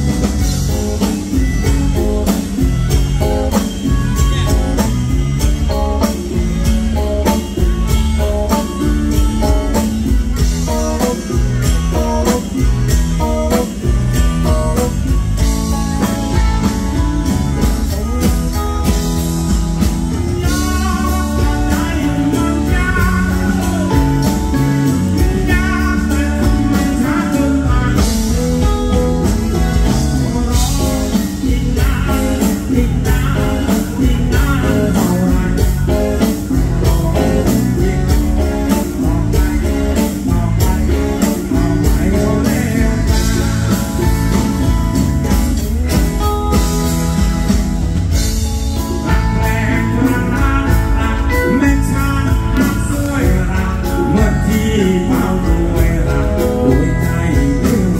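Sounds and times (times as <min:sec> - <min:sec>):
drums playing: 0:00.0 - 0:57.9
guitars playing: 0:00.0 - 0:57.9
man singing: 0:19.8 - 0:45.6, 0:48.8 - 0:57.9.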